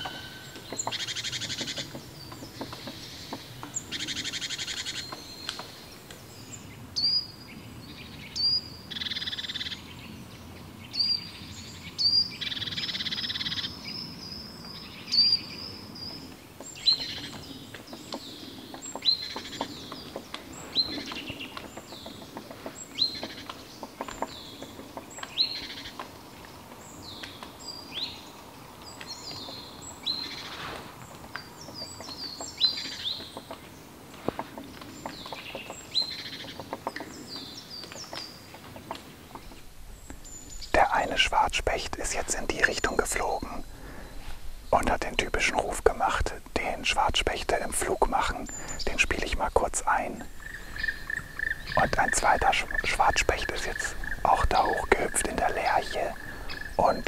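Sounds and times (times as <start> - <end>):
rapid bird trills: 31.5 - 57.0.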